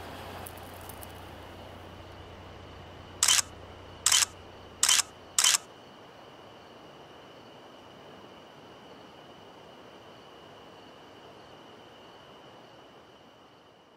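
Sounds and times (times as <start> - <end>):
low steady hum: 0.0 - 5.6
camera shutter clicks: 3.2 - 3.5, 4.1 - 5.7.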